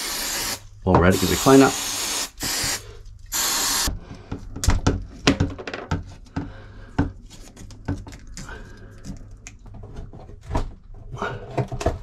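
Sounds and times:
aerosol can spraying: 0.0 - 3.9.

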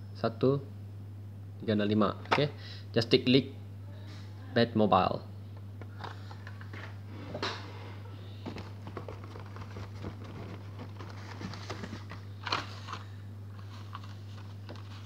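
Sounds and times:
steady low hum: 0.0 - 15.0
packaging clicks and rustles: 8.4 - 15.0.

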